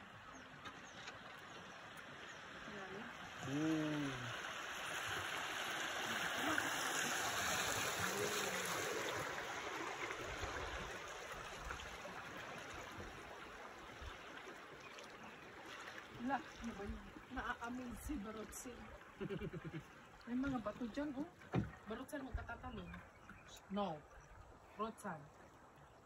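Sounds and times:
river water rushing against boat: 0.0s - 25.8s.

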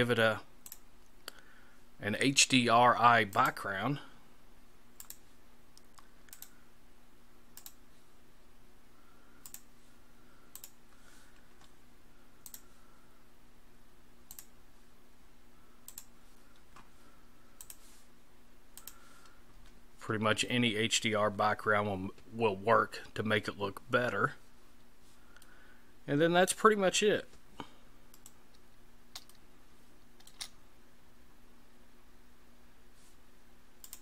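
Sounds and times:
faint low hum: 0.0s - 34.0s
computer mouse clicking: 0.6s - 1.4s, 5.0s - 5.2s, 5.8s - 6.6s, 7.6s - 7.8s, 9.4s - 9.7s, 10.5s - 10.8s, 12.4s - 12.7s, 14.3s - 14.5s, 15.8s - 16.6s, 17.6s - 17.8s, 18.8s - 19.4s, 28.1s - 29.4s, 30.2s - 30.6s, 33.8s - 34.0s.

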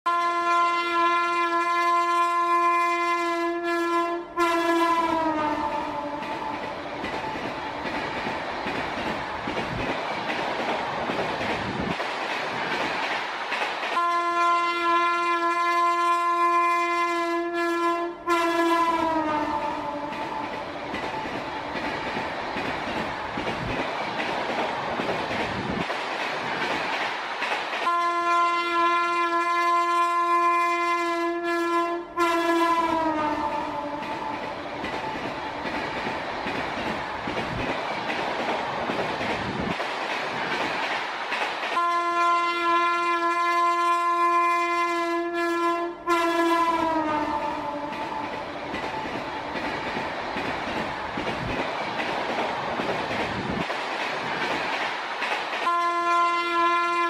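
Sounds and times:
train horn: 0.0s - 6.6s, 14.0s - 20.5s, 27.8s - 34.4s, 41.8s - 48.3s, 55.6s - 57.0s
train rumbling on track: 0.1s - 57.0s.

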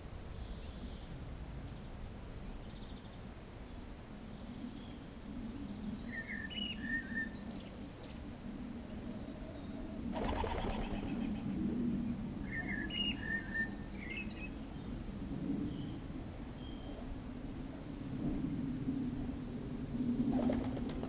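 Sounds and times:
bird chirping: 9.4s - 14.5s
wingbeats fluttering: 10.1s - 11.5s, 20.3s - 21.0s.

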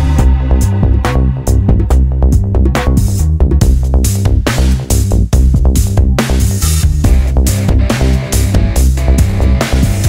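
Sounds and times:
electronic music with deep bass: 0.0s - 10.0s.

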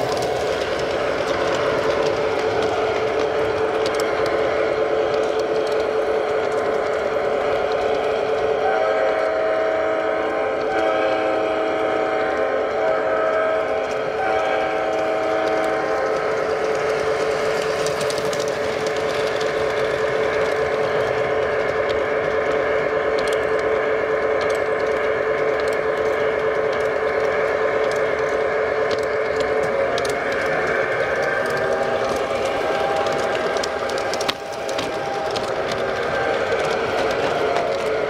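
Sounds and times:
model train whine and rumble: 0.0s - 38.0s
model train whistle blasts: 8.5s - 16.4s, 22.0s - 38.0s.

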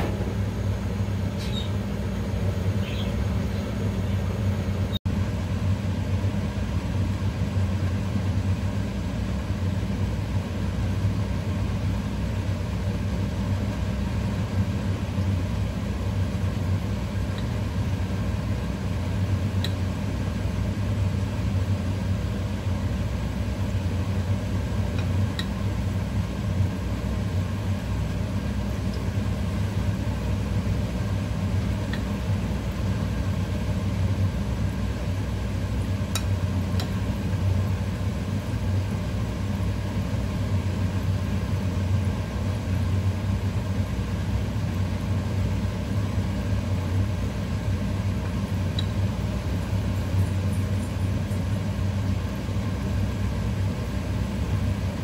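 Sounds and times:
low electric hum of fan: 0.0s - 55.0s
food frying in hot oil pops: 24.9s - 25.6s, 31.6s - 33.4s, 35.7s - 37.3s.

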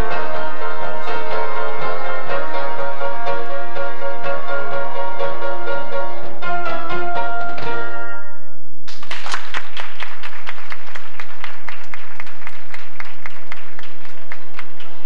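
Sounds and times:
music: 0.0s - 15.0s
audience applauding: 8.9s - 15.0s.

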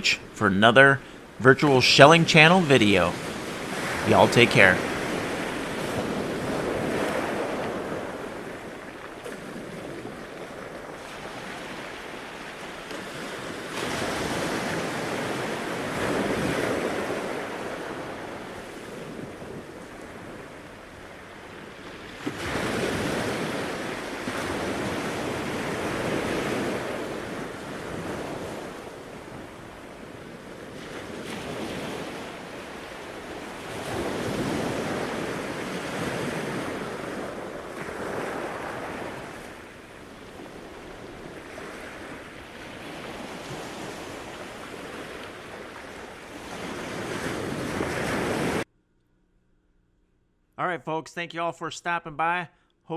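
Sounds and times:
surf breaking on a beach: 0.0s - 48.7s
wind buffeting the microphone: 4.8s - 48.6s.

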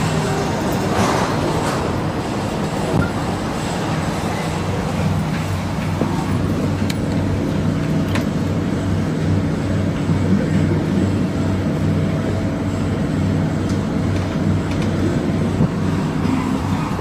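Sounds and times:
train hum and rumble: 0.0s - 17.0s.

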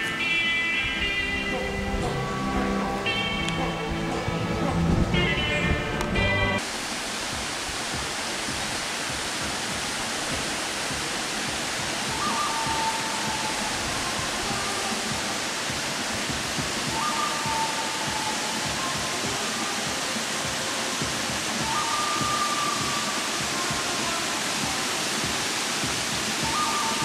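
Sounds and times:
waterfall rushing: 0.0s - 27.0s
two-note whistle: 12.1s - 14.2s, 16.9s - 19.2s, 21.6s - 23.6s, 26.4s - 27.0s.

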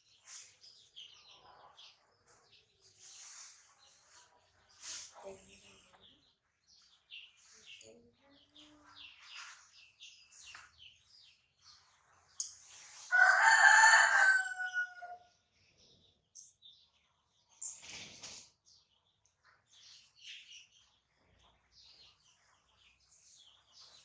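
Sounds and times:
rooster crowing: 13.1s - 15.3s.

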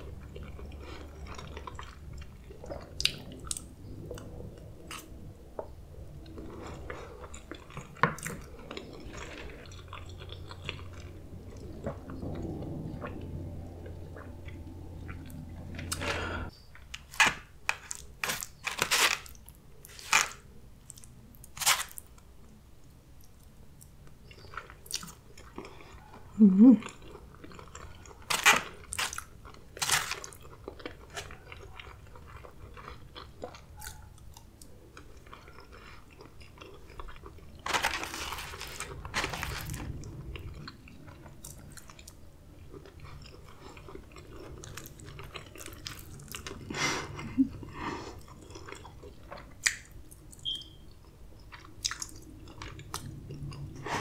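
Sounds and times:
chewing with wet mouth clicks: 0.1s - 5.1s, 23.2s - 37.6s, 39.9s - 53.8s.

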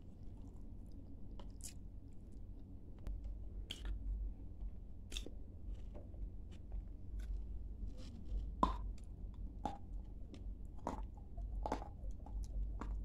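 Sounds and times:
crunchy clay being chewed: 0.0s - 13.0s.

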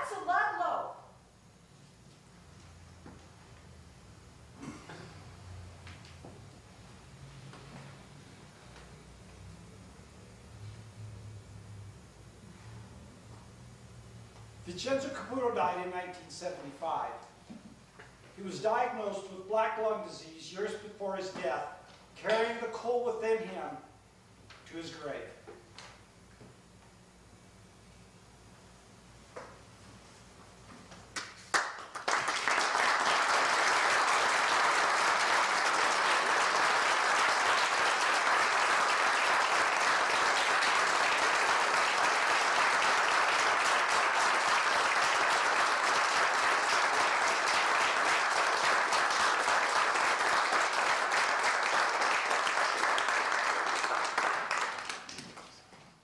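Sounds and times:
audience applauding: 31.2s - 55.6s.

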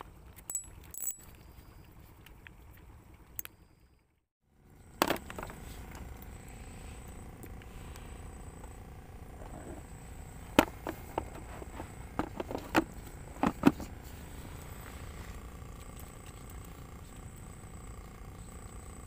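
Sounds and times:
plastic cooler box clicks and knocks: 12.1s - 13.9s.

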